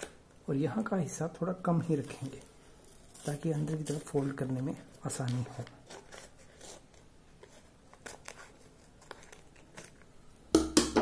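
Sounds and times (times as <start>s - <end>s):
scissors snipping paper: 3.1s - 7.0s.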